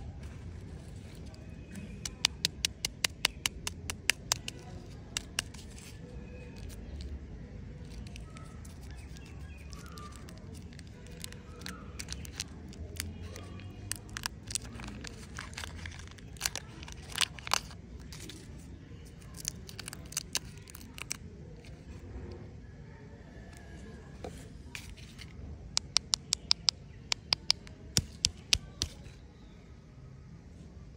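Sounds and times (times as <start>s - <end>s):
wrapper crinkling and tearing: 7.8s - 21.7s.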